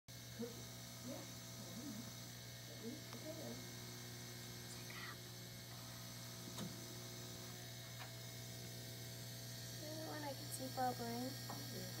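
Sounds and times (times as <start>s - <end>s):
low electrical hum: 0.1s - 12.0s.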